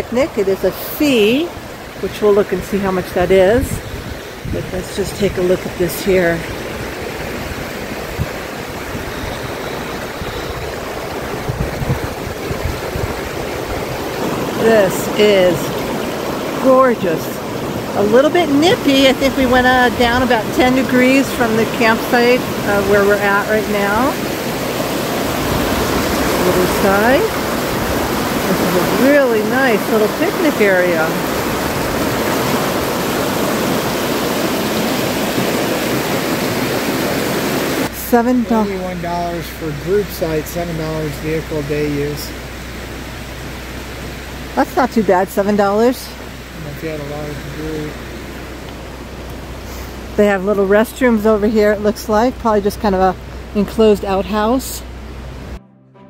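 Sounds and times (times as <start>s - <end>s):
creek rushing over rocks: 0.0s - 54.6s.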